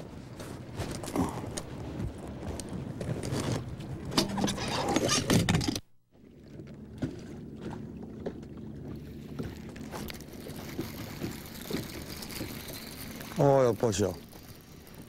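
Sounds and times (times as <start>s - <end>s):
boat motor humming: 5.8s - 15.0s.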